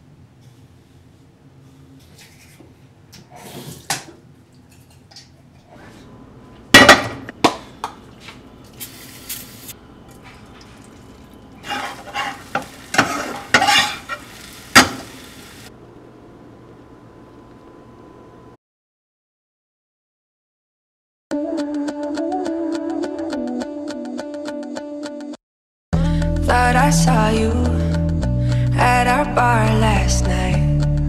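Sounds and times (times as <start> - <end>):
short hiss: 8.8 - 9.8
utensils and dishes clanking: 9.3 - 15.2.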